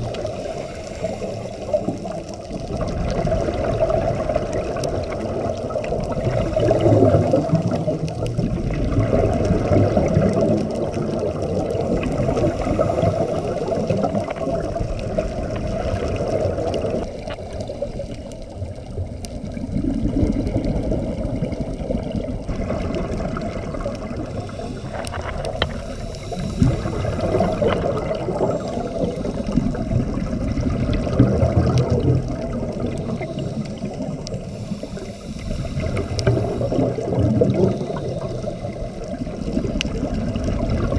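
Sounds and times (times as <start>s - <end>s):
underwater bubbling of exhaled breath: 0.0s - 40.9s.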